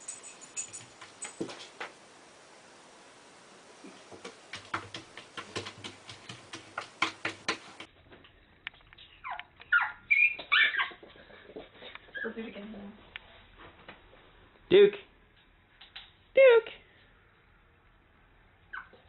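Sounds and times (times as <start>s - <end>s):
small dog yipping: 9.2s - 11.0s, 12.1s - 12.4s, 18.7s - 19.0s.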